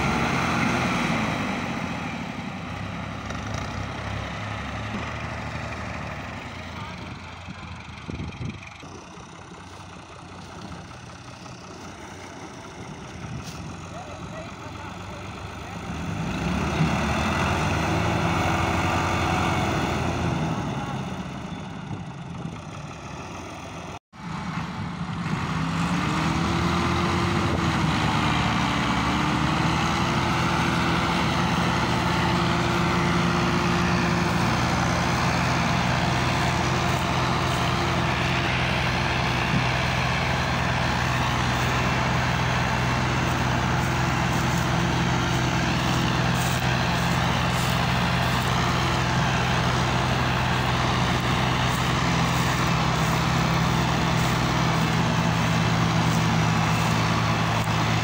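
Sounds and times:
diesel tractor engines droning: 0.0 - 58.0.

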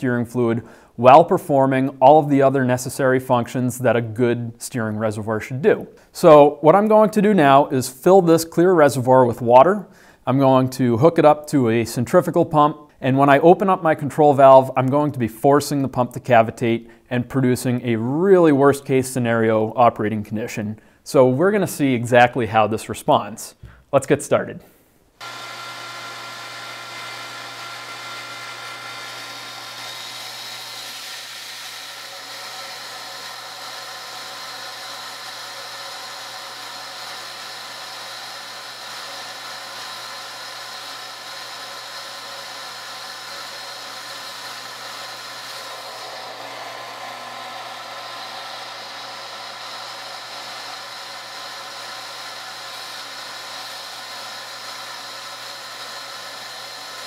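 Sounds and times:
electric pump whining: 25.2 - 57.0.

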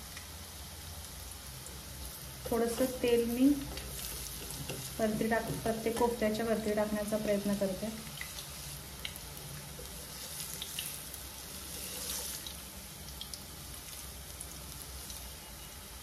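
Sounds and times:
deep-frying sizzle with crackles: 0.0 - 16.0.

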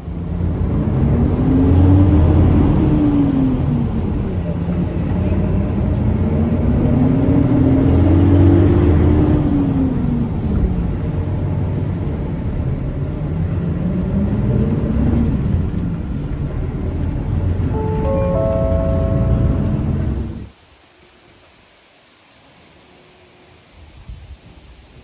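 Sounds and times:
bus engine: 0.0 - 20.6
road rumble: 0.0 - 20.7.

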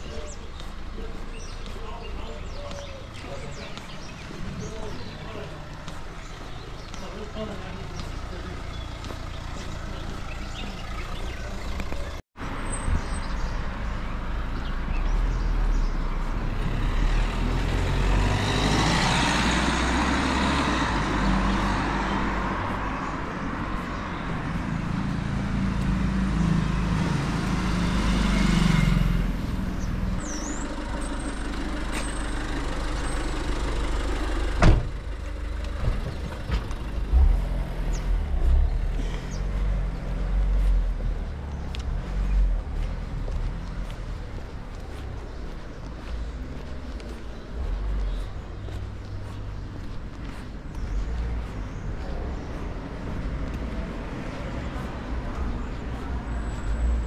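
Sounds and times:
traffic engine rumble: 0.0 - 57.0
vehicle passing close: 15.2 - 57.0.

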